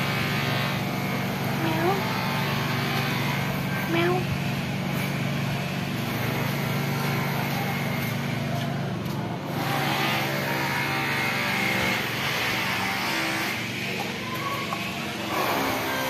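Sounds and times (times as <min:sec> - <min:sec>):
motor vehicle engine running: 0:00.0 - 0:16.0.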